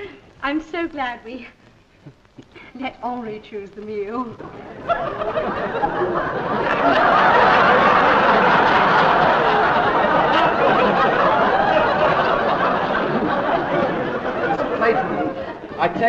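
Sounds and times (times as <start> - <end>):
audience laughing: 4.4 - 16.0.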